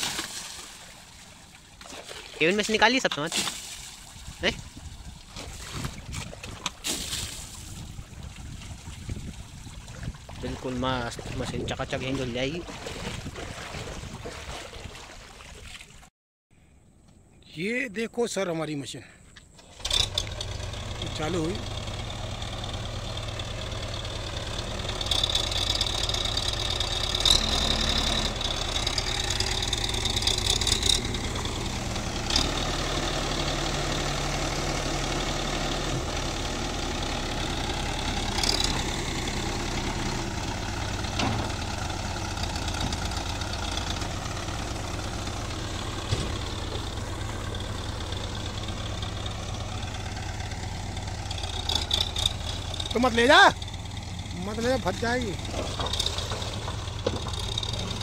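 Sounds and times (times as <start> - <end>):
diesel engine idling: 19.7 - 58.0.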